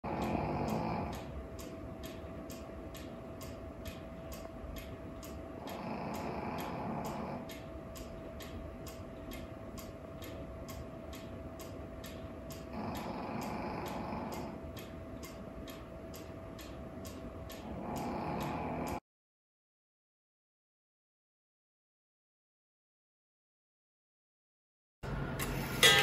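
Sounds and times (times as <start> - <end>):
clock pendulum ticking: 0.0 - 19.0, 25.8 - 26.0
faint steady hum: 0.0 - 19.0, 25.0 - 26.0.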